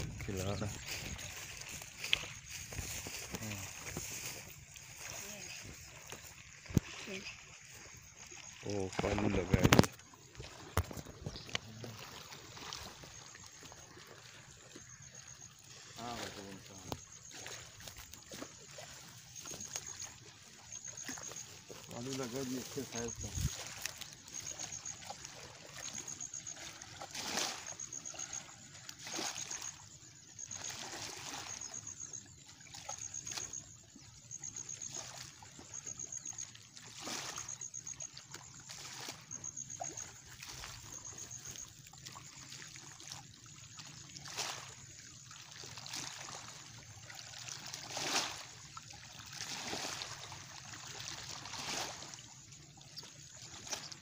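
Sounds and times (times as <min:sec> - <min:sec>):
fish splashing at surface: 0:15.9 - 0:29.9.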